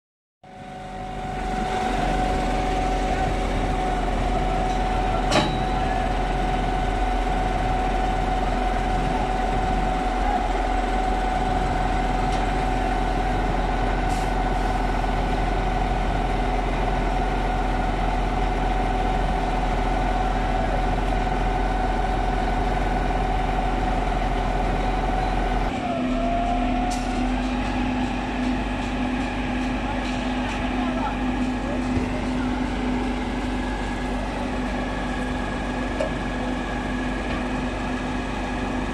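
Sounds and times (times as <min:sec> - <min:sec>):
concrete pump engine drone: 0:00.4 - 0:38.9
steady mechanical whine: 0:00.4 - 0:38.9.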